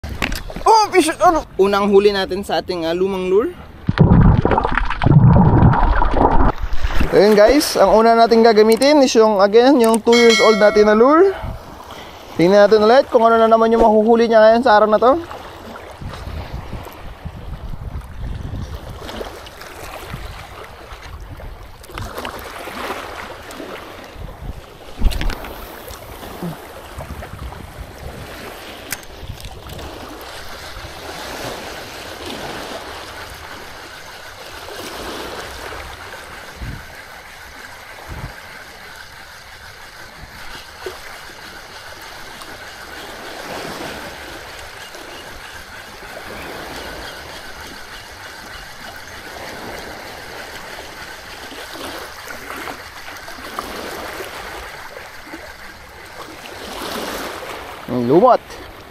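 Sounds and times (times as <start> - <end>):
waves washing over rocks: 0.0 - 58.9.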